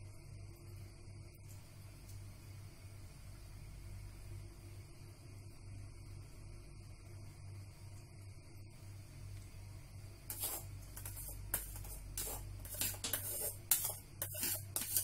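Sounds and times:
steady low hum: 0:00.0 - 0:15.0
spoon scraping metal mesh strainer: 0:10.3 - 0:15.0.

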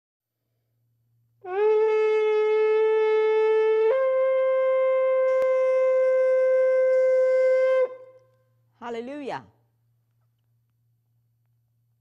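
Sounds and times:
shofar blast: 0:01.4 - 0:08.3.

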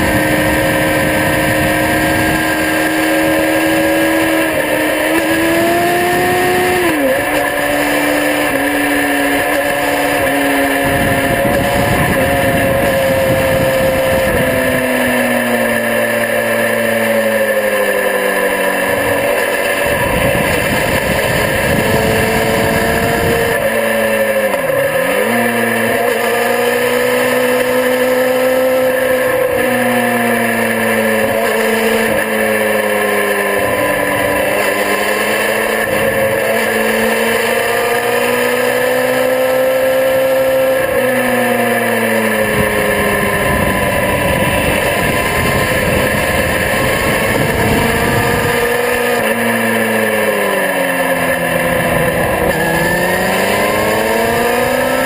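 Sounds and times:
wind rush on microphone: 0:00.0 - 0:15.7, 0:18.8 - 0:24.0, 0:42.0 - 0:50.0
motorcycle engine revving: 0:00.0 - 0:55.0.

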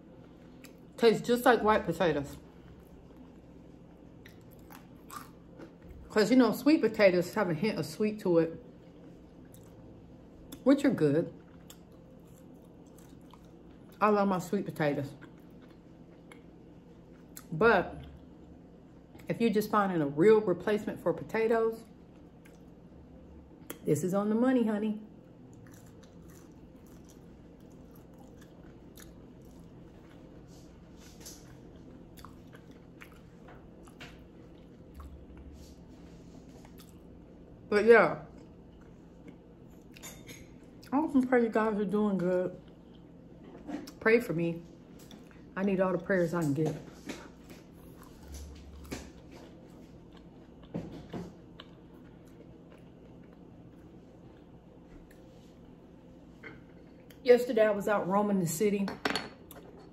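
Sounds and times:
chewing crunchy fries: 0:02.3 - 0:06.1, 0:08.6 - 0:10.7, 0:11.3 - 0:19.3, 0:21.9 - 0:23.8, 0:25.2 - 0:37.6, 0:47.0 - 0:55.4.

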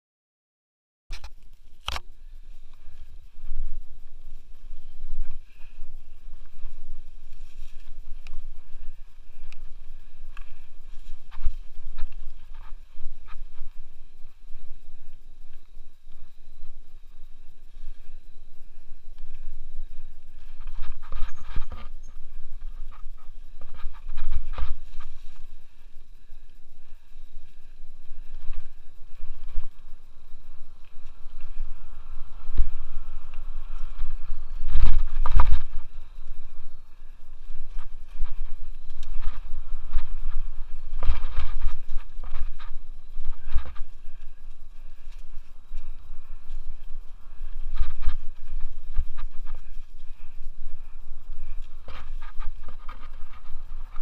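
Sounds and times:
bike tyre noise: 0:01.1 - 0:54.0
wind rumble on microphone: 0:01.1 - 0:54.0
bike knocking and rattling: 0:20.3 - 0:25.8.

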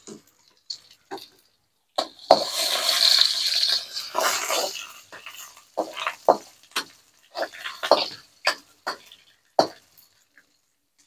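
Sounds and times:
fish frying in oil: 0:00.0 - 0:11.0
metal ladle scraping a wok: 0:02.2 - 0:08.2.

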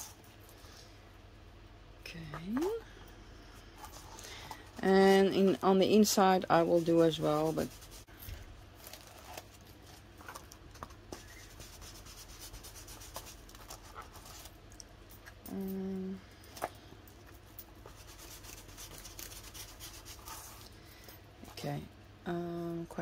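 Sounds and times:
steady low hum: 0:00.0 - 0:23.0
hands scratching and rubbing paper: 0:06.5 - 0:08.1, 0:08.8 - 0:14.6, 0:17.8 - 0:20.6.

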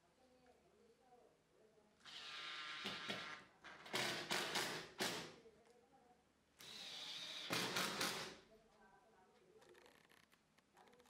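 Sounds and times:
cordless drill driving into wood: 0:06.6 - 0:08.3.

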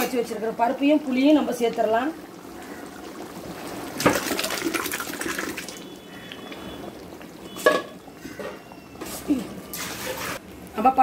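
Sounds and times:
liquid poured into pot splashing: 0:01.6 - 0:08.0.

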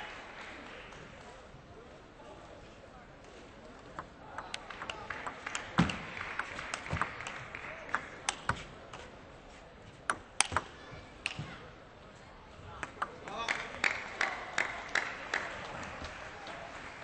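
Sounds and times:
crowd noise: 0:00.0 - 0:17.0
table tennis ball clicks: 0:03.9 - 0:08.6, 0:12.8 - 0:13.4.

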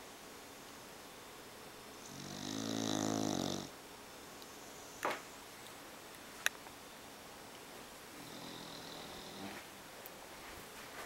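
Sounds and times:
dog snoring: 0:02.0 - 0:03.7, 0:08.2 - 0:09.6.

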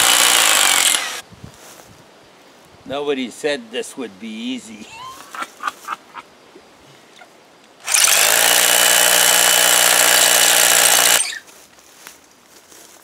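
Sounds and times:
power drill boring into stone: 0:00.0 - 0:01.2, 0:07.8 - 0:11.4.

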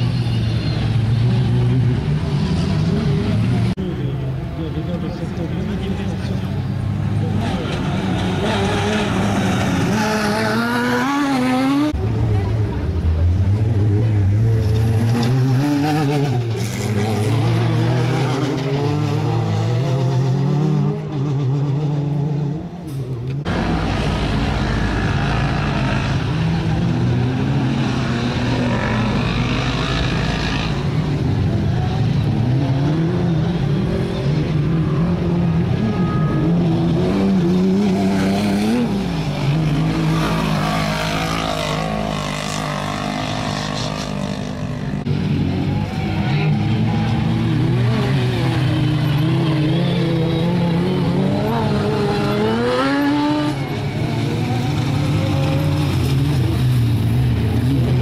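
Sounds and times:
race car engines: 0:00.0 - 0:58.0
engine revving up: 0:36.4 - 0:58.0.

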